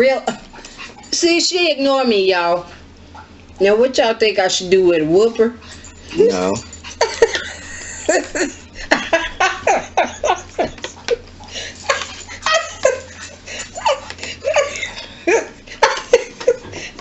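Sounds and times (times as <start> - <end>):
woman laughing hard: 7.0 - 17.0.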